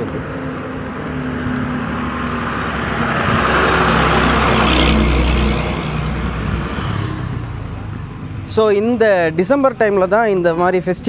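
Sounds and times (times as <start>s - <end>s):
truck engine driving past: 0.0s - 8.5s.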